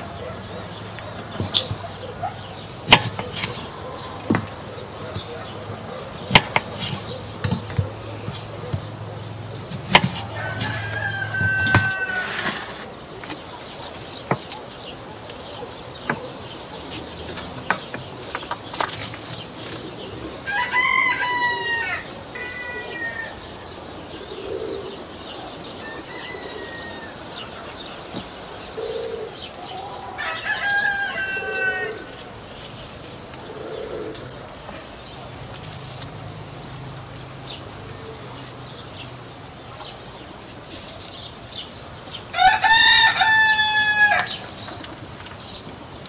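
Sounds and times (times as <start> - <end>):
rooster crowing: 10.2 - 12.8, 20.4 - 23.7, 25.7 - 27.6, 29.6 - 32.2, 42.3 - 44.5.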